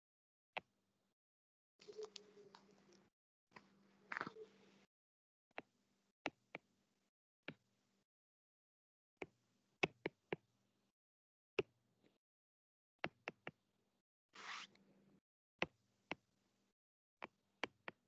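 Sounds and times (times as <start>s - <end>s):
stylus scraping: 14.4s - 14.8s.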